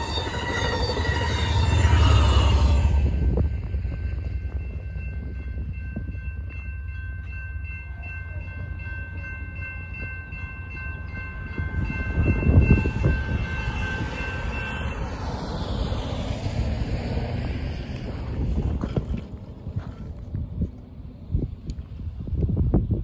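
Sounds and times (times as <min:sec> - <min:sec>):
railroad crossing bell ringing: 0:00.0 - 0:16.8
departing train rumble: 0:00.0 - 0:23.0.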